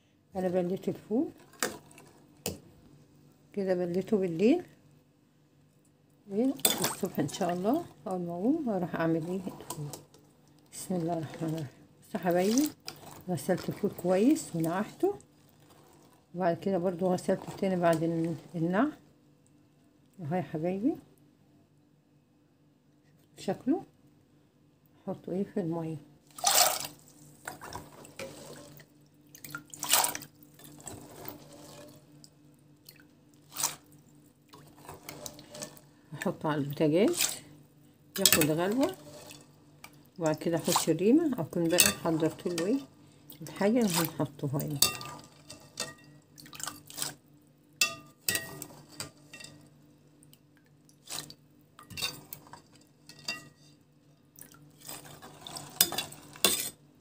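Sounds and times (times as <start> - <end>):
faint steady hum: 0.0 - 57.0
water sloshing in metal pot: 0.4 - 2.6, 6.4 - 18.8, 26.3 - 37.5, 38.2 - 49.7, 51.0 - 56.8.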